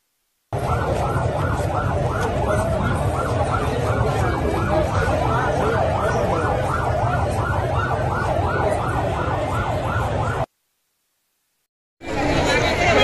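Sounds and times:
siren yelping: 0.6 - 10.5.

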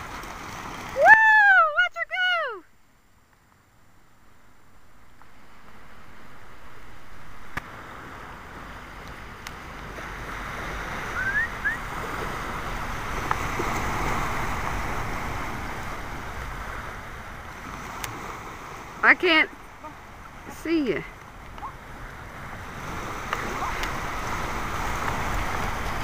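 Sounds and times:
small surf washing onto beach: 0.0 - 1.3, 5.1 - 26.0
wind buffeting microphone: 4.9 - 26.0
short rising chirps: 11.1 - 11.9.

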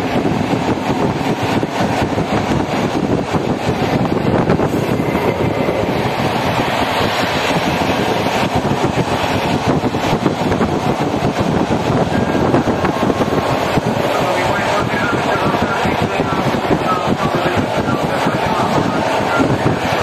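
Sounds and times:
train wheels on track: 0.0 - 20.0
wind buffeting microphone: 0.0 - 20.0.

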